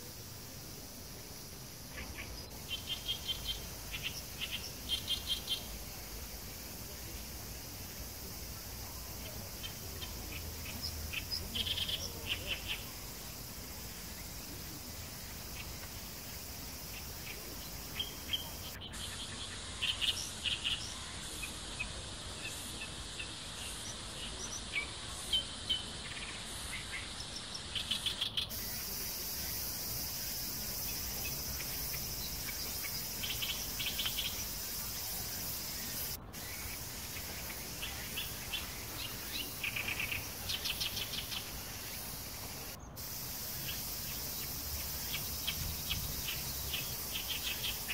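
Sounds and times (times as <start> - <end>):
insects droning: 0.0 - 47.9
birds chirping: 1.9 - 6.0, 14.2 - 47.9.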